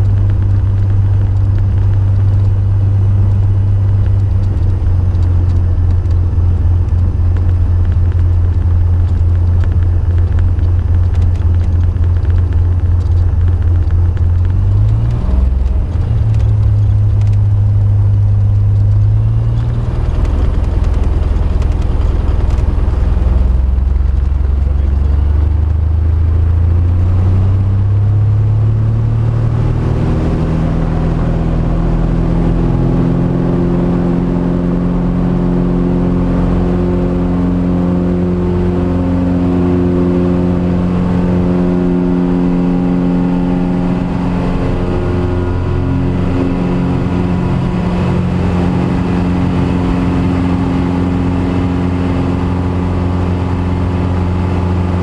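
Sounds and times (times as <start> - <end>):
light aircraft engine and propeller drone: 0.0 - 55.0.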